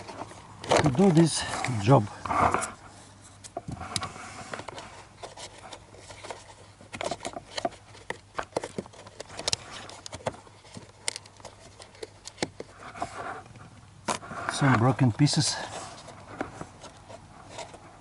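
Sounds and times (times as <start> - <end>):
plastic clips clicking and scraping: 0.0 - 2.8, 3.4 - 13.5.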